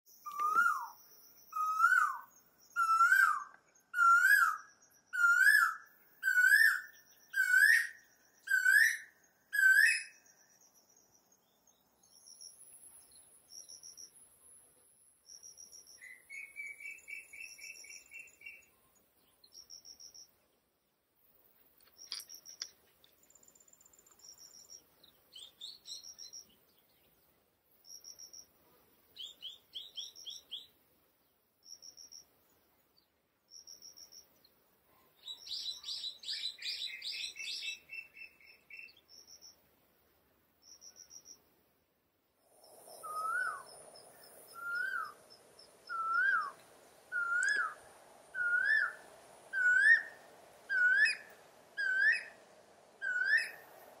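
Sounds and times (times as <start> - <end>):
high bird calls: 0.1 - 10.2, 42.6 - 54.0
koel whistling call: 43.0 - 43.7, 44.5 - 45.2, 45.9 - 52.4, 53.0 - 53.7.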